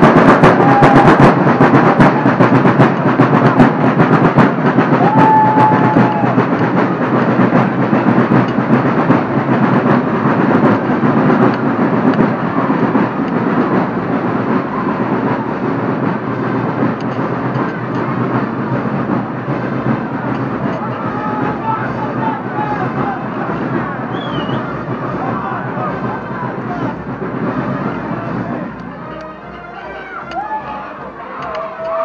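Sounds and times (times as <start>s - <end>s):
street procession clattering: 0.0s - 32.0s
short whistle: 24.1s - 24.7s.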